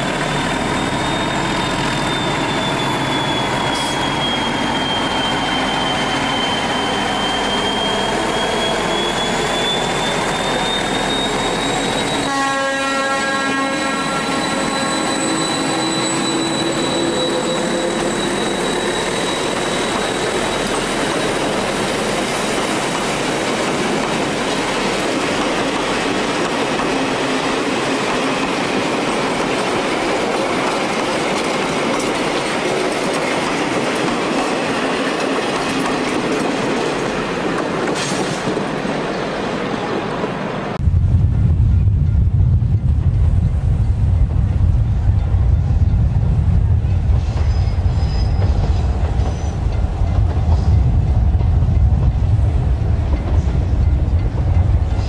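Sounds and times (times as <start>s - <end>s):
train coaches rolling by: 0.0s - 40.8s, 41.8s - 55.0s
diesel locomotive engine under load: 0.0s - 55.0s
train horn blast: 12.2s - 18.4s.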